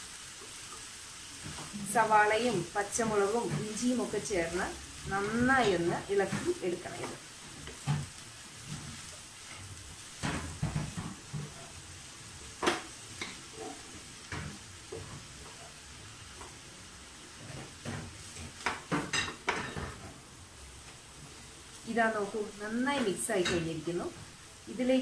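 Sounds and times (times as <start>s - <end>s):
faint steady hiss: 0.0s - 25.0s
wooden spatula scraping a pan: 0.4s - 20.2s.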